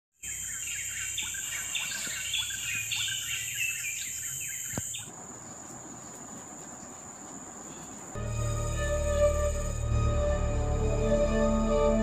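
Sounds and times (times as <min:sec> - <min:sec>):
small birds chirping: 0:00.2 - 0:08.2
high-pitched insect drone: 0:08.2 - 0:10.1.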